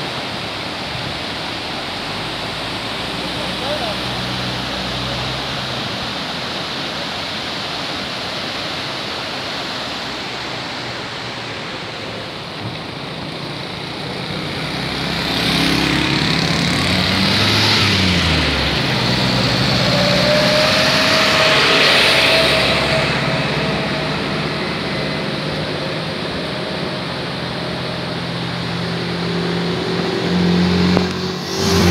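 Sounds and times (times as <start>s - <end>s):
turbulent river water rushing: 0.0s - 31.9s
vehicle engine passing: 2.0s - 7.7s, 10.0s - 31.9s.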